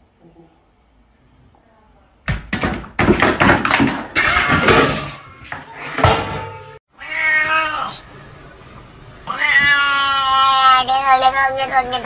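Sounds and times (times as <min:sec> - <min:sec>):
cat meowing: 0:07.0 - 0:08.1, 0:09.2 - 0:12.0.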